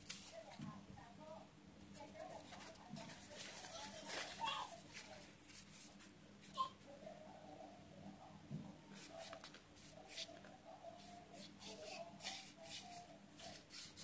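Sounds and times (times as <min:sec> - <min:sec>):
tissue rubbing phone frame: 0:02.0 - 0:06.6, 0:08.9 - 0:14.0.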